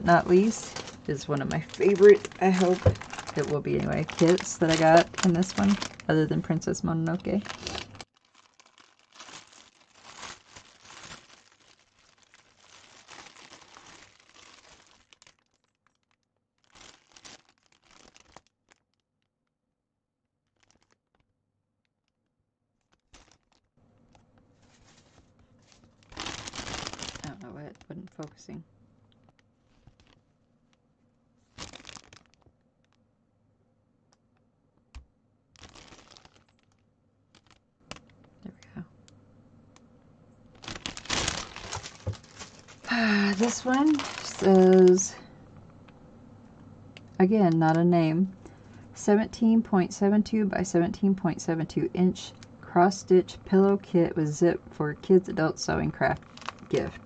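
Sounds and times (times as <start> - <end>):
plastic packaging crinkling: 0.0 - 19.3, 20.4 - 21.2, 22.8 - 28.4, 29.2 - 30.3, 31.4 - 33.0, 35.5 - 38.8, 40.5 - 46.0, 55.9 - 57.0.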